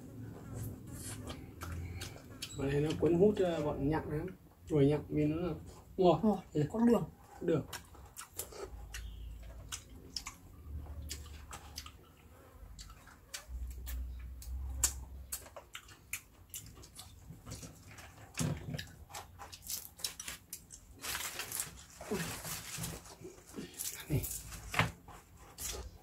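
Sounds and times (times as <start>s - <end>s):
chewing and mouth sounds: 0.5s - 3.1s, 7.6s - 20.9s.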